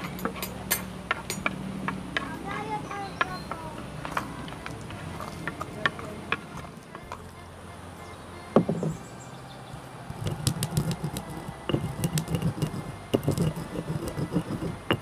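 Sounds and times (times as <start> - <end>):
seeds cracking: 10.1 - 15.0
stone pestle grinding spices: 10.1 - 15.0.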